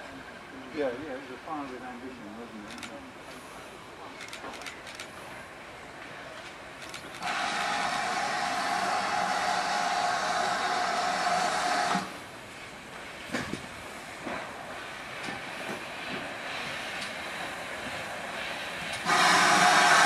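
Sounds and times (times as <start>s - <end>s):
steam hissing: 7.1s - 20.0s.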